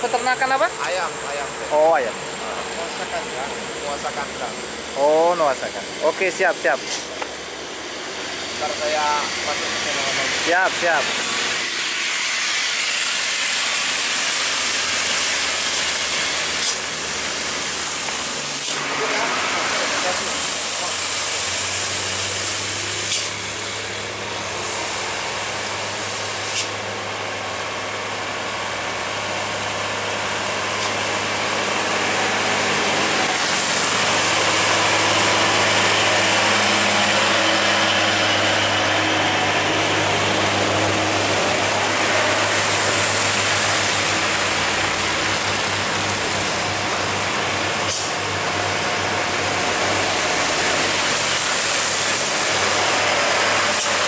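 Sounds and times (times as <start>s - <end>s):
diesel truck engines under load: 0.0s - 12.0s, 13.0s - 54.0s
tyres hissing on wet road: 0.1s - 54.0s.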